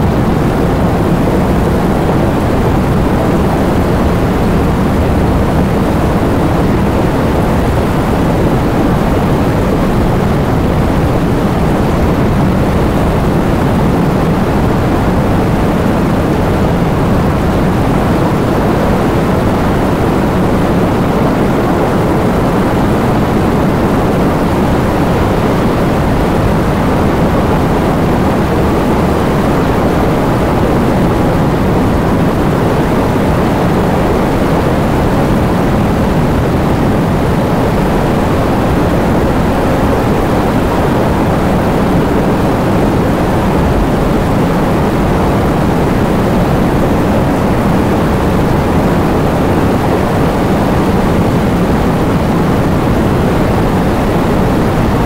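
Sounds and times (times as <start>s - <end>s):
heavy rain: 0.0s - 55.0s
wind: 0.0s - 55.0s.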